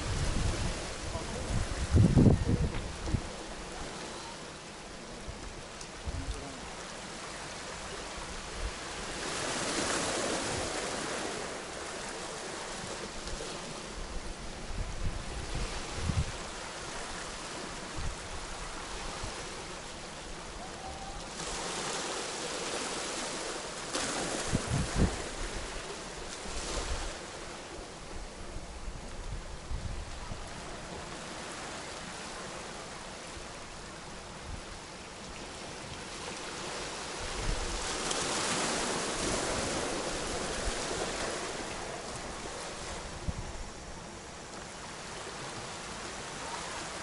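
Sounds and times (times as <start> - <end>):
wind thumps on microphone: 0.0 - 3.3, 14.7 - 16.4, 24.3 - 25.6
waves washing onto pebble beach: 0.0 - 28.4, 35.5 - 47.0.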